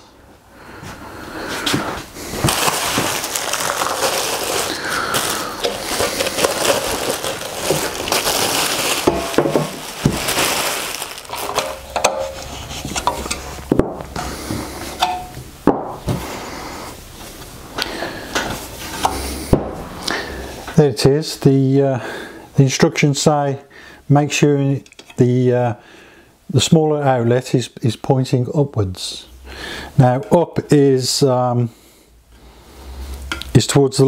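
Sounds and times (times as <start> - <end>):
rustling handling noise: 0.9 - 15.4.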